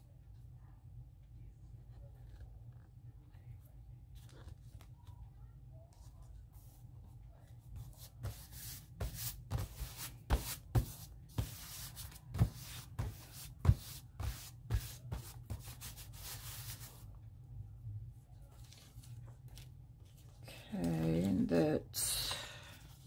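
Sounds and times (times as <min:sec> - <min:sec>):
paper rubbed and rustled by hand: 0:07.8 - 0:17.0.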